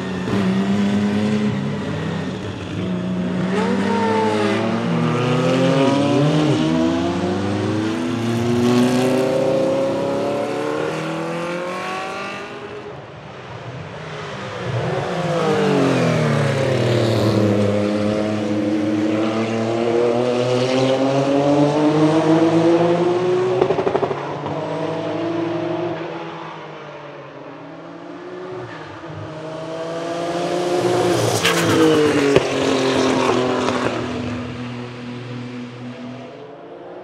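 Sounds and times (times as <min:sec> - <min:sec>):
race car accelerating past: 0:00.2 - 0:12.8, 0:27.8 - 0:36.4.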